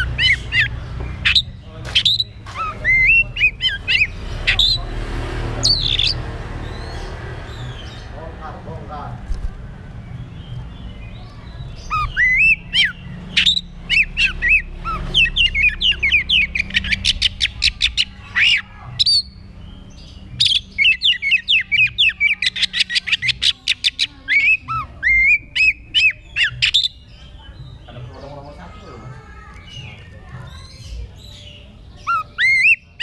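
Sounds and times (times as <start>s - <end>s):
bird singing whistled song: 10.2s - 27.9s, 31.3s - 33.0s.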